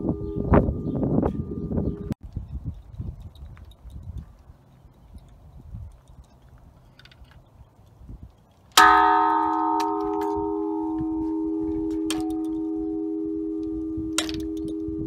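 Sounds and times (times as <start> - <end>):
metal bell ringing: 8.8 - 15.0.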